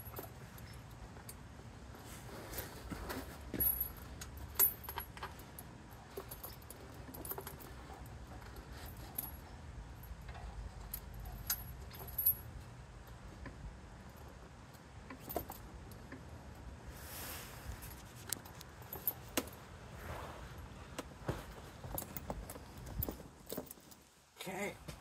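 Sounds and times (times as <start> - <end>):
tire chain clinking: 0.0 - 1.4, 2.3 - 16.3, 17.8 - 19.6, 21.5 - 24.1.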